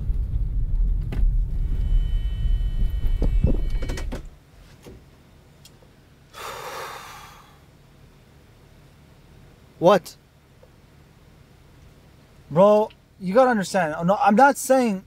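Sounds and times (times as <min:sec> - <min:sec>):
car engine and road noise: 0:00.0 - 0:06.3.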